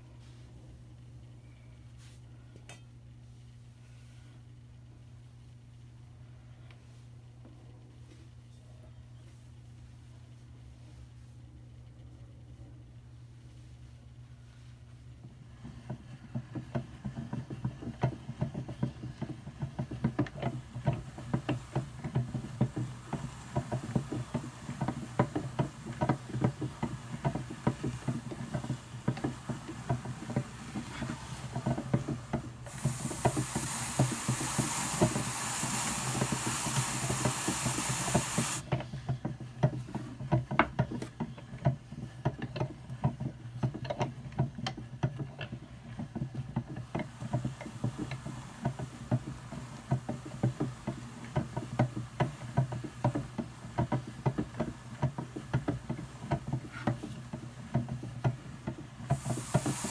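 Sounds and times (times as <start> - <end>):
hand-cranked drum carder ticking: 15.6 - 59.9
bristle brush hissing on drum: 20.5 - 38.6, 46.8 - 57.3, 59.0 - 59.9.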